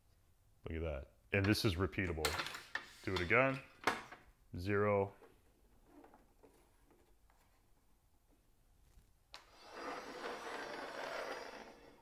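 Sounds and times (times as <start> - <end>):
fence scraping across table: 9.4 - 12.0.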